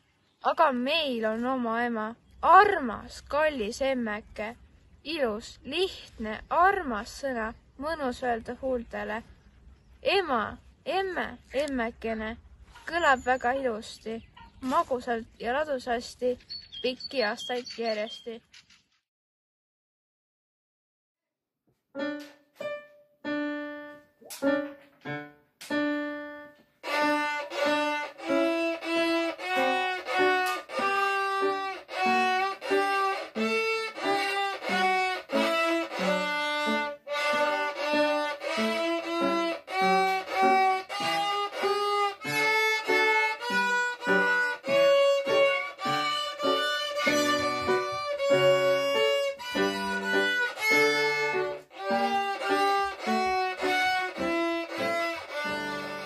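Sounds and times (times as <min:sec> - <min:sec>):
digital piano accompaniment: 0:22.0 - 0:56.0
violin melody: 0:22.0 - 0:56.0.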